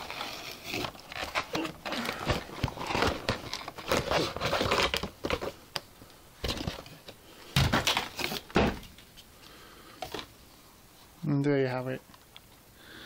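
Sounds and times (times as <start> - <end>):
plastic packaging crinkling: 0.0 - 5.8.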